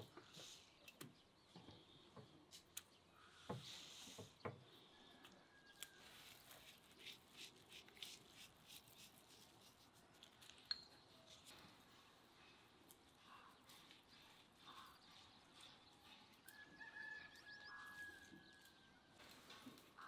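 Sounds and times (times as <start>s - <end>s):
salt sprinkling patter: 6.0s - 16.5s.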